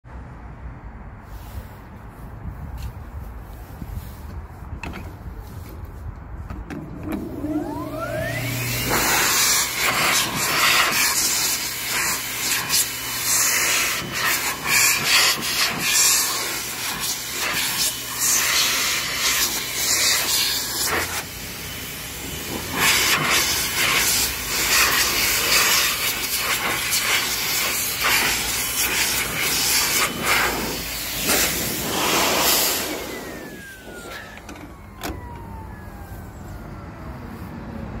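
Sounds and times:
vacuum motor whine winding down: 6.9 - 26.2, 29.4 - 37.0
air rushing through vacuum hose: 6.9 - 35.4.

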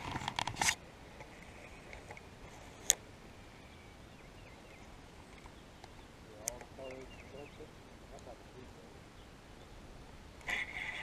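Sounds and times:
faint bird chirps: 3.2 - 8.0.

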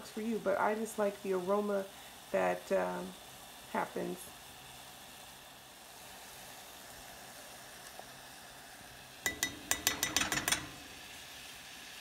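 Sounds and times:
metal cup clinking on saucepan rim: 9.3 - 11.0.

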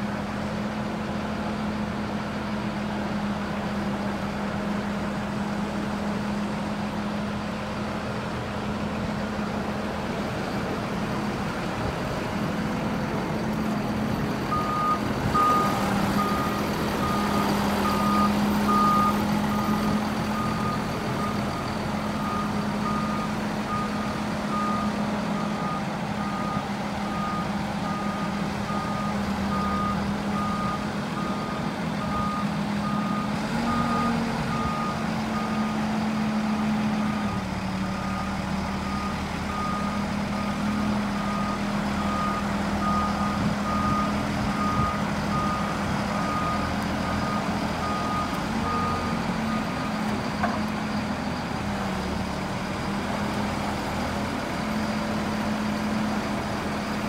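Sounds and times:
diesel engine running: 0.0 - 57.0
backup alarm beeping: 14.5 - 26.6.

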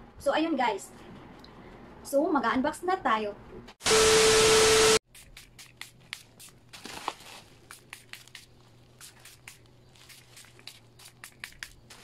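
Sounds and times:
parcel packaging rustling: 5.2 - 12.0.

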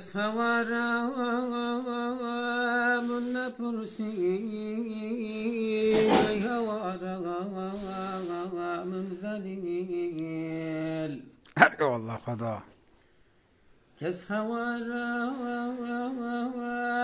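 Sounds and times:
man chanting: 0.0 - 12.7.

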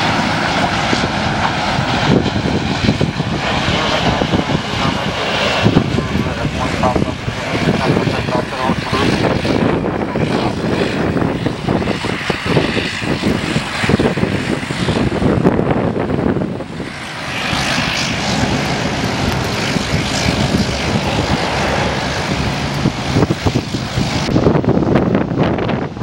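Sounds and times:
jet engines rumbling: 0.0 - 26.0
wind buffeting microphone: 0.0 - 26.0.

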